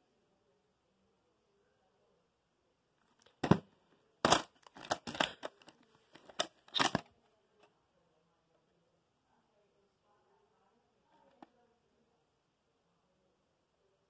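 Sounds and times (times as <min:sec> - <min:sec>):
plastic case clicks and rattles: 0:04.3 - 0:07.0.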